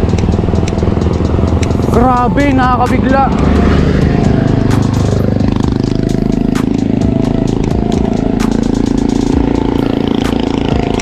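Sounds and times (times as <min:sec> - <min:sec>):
small motorcycle engine droning: 0:00.0 - 0:11.0
sharp clicks: 0:00.1 - 0:00.8, 0:01.4 - 0:01.9.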